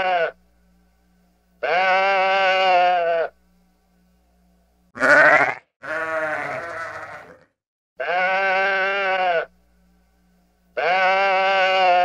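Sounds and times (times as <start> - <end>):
sheep bleating: 0.0 - 0.4, 1.6 - 3.4, 5.0 - 9.5, 10.8 - 12.0.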